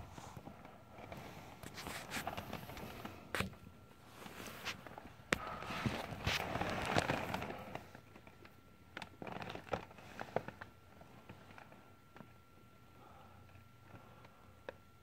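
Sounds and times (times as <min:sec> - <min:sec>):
rustling close to microphone: 0:00.0 - 0:08.0.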